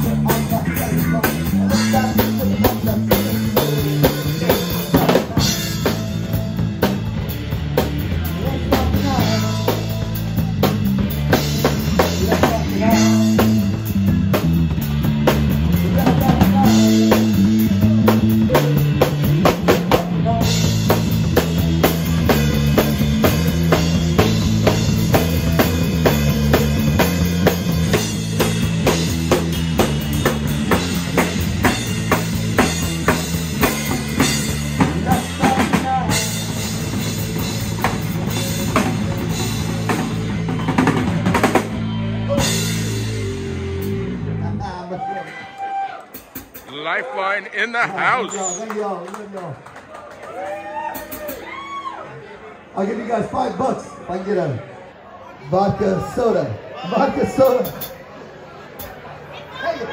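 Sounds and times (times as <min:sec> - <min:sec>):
drum kit beat: 0:00.0 - 0:44.2
electric bass line: 0:00.0 - 0:44.9.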